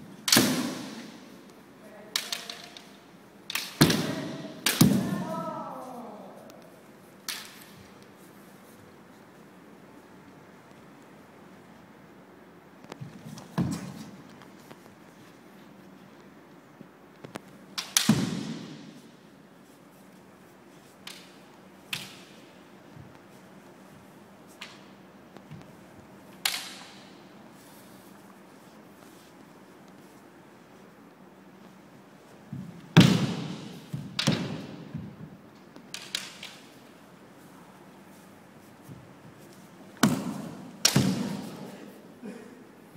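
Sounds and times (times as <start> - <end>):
bamboo swords clacking: 0.2 - 5.4, 6.5 - 8.2, 17.7 - 19.2, 20.8 - 23.2, 26.3 - 27.3, 33.0 - 35.0, 35.7 - 37.0, 39.6 - 41.7.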